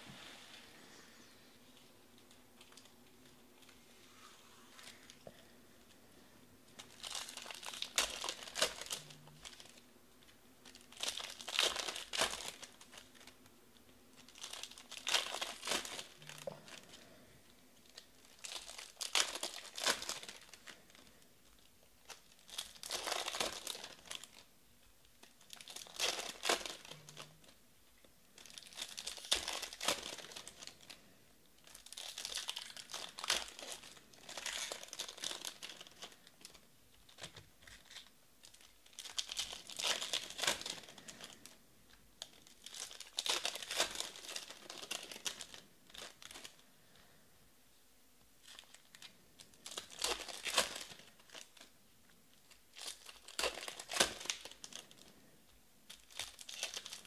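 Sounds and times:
foil wrappers torn and crinkled: 0:06.7 - 0:09.8, 0:10.6 - 0:13.4, 0:14.2 - 0:17.2, 0:17.8 - 0:24.5, 0:25.2 - 0:27.6, 0:28.4 - 0:47.0, 0:48.4 - 0:51.7, 0:52.4 - 0:55.2, 0:55.9 - 0:57.0.

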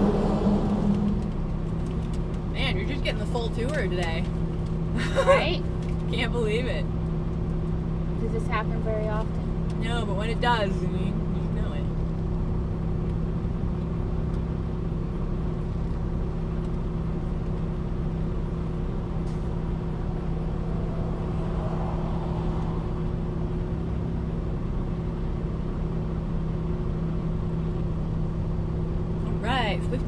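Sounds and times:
road noise: 0:00.0 - 0:30.0
truck diesel engine droning: 0:00.0 - 0:30.0.

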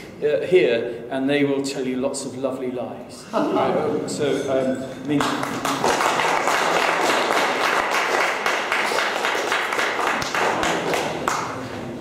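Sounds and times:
audience applauding: 0:05.2 - 0:11.7.

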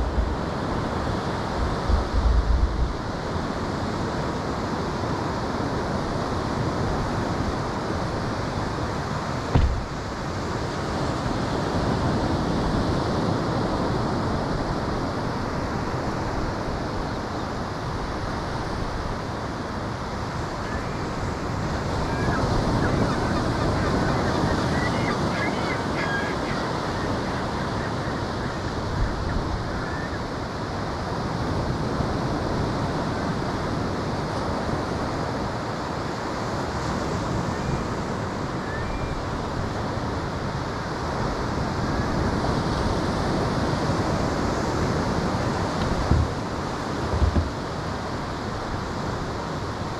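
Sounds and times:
ocean surf: 0:00.0 - 0:49.9
wind: 0:00.0 - 0:49.9.

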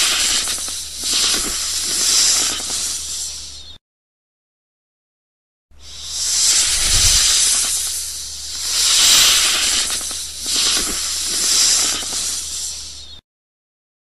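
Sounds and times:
snake hissing: 0:00.0 - 0:03.7, 0:05.8 - 0:13.2.

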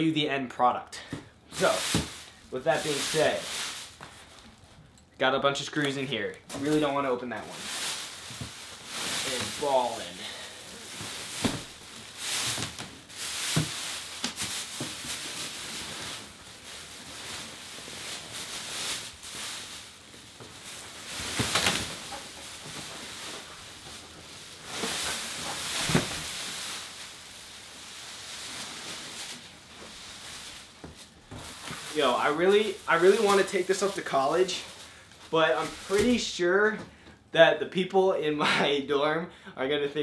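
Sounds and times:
plastic wrapping crinkling: 0:01.5 - 0:05.0, 0:05.6 - 0:36.6.

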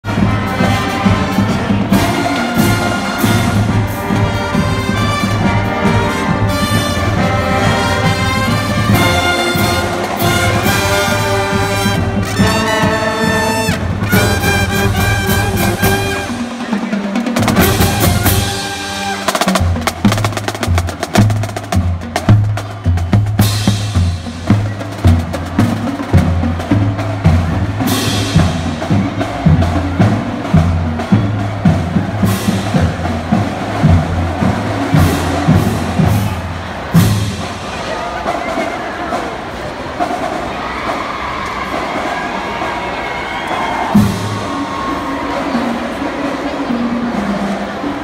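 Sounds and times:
bass drum and snare beat: 0:00.0 - 0:37.5
brass band playing: 0:00.0 - 0:48.0.

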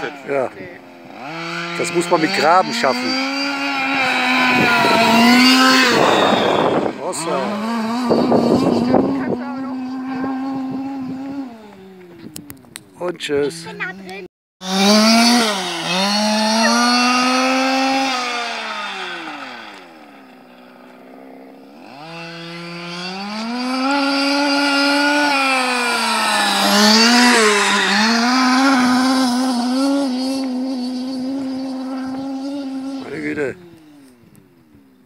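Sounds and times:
two-stroke engine revving: 0:00.0 - 0:12.4, 0:13.4 - 0:34.7.

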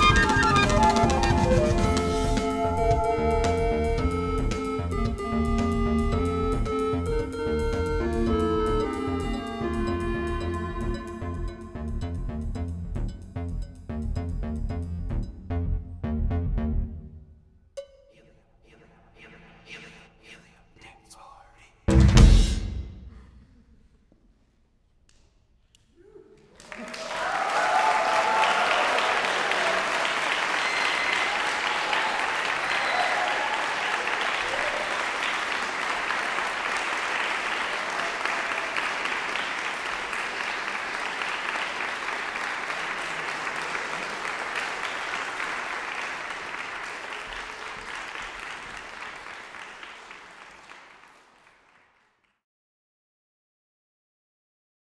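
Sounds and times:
audience applauding: 0:00.0 - 0:03.3, 0:26.3 - 0:52.4
audience cheering: 0:00.0 - 0:03.5, 0:26.0 - 0:51.3.

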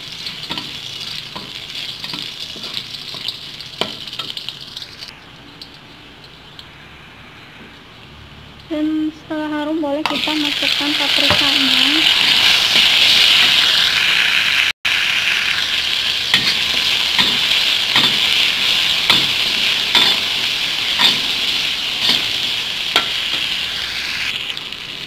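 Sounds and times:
vegetables sizzling in hot oil: 0:00.0 - 0:05.7, 0:09.0 - 0:25.0
metal spatula scraping a wok: 0:16.3 - 0:24.2.

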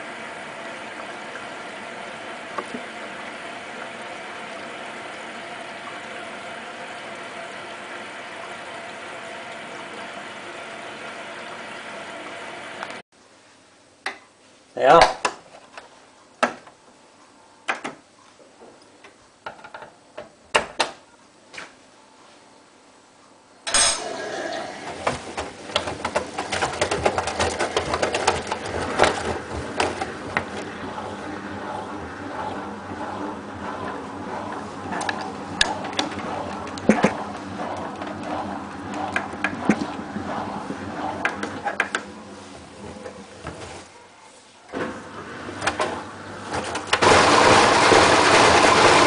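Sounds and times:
washing machine whirring: 0:00.0 - 0:13.0, 0:23.6 - 0:49.0.

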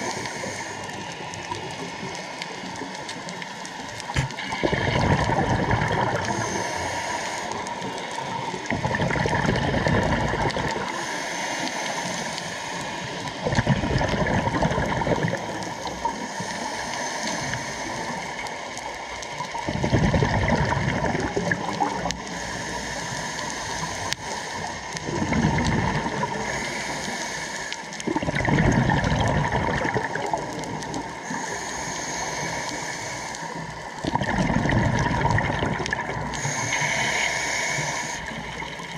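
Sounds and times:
regulator inhale hissing: 0:00.0 - 0:03.1, 0:06.1 - 0:08.8, 0:10.8 - 0:13.4, 0:15.4 - 0:18.9, 0:21.6 - 0:25.2, 0:26.1 - 0:28.0, 0:30.9 - 0:34.0, 0:36.1 - 0:38.9
exhaled bubbles gurgling: 0:00.0 - 0:38.9.

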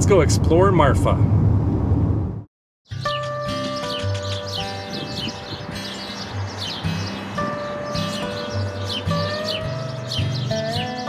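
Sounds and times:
background music with bass line: 0:02.9 - 0:11.0.

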